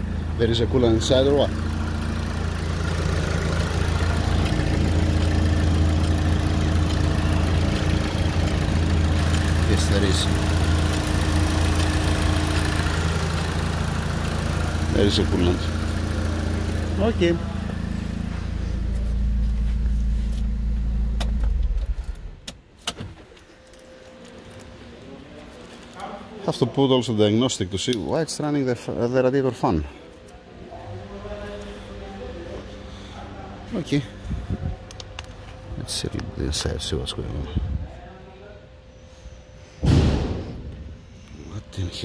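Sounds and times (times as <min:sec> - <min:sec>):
higher hum: 0:00.0 - 0:25.4
car engine running hum: 0:00.0 - 0:25.9, 0:31.0 - 0:38.1
radiator fan running: 0:00.0 - 0:26.8, 0:29.7 - 0:39.6.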